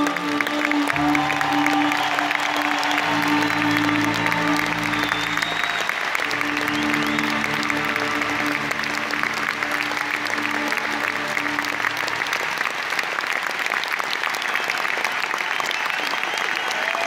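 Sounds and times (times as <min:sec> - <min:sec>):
orchestra and band held chord: 0:00.0 - 0:13.6
audience applauding: 0:00.0 - 0:17.0.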